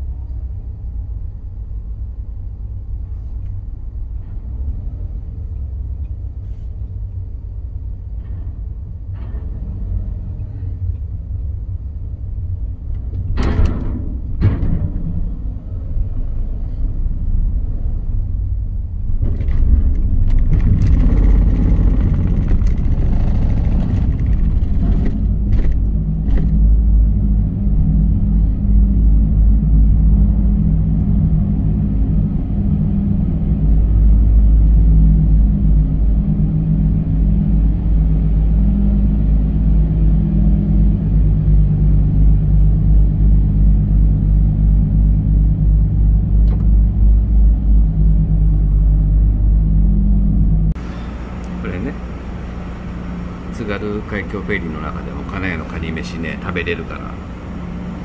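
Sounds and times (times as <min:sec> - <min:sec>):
car engine low rumble: 0:00.0 - 0:58.0
rattling and knocks: 0:13.0 - 0:15.6, 0:19.2 - 0:26.8.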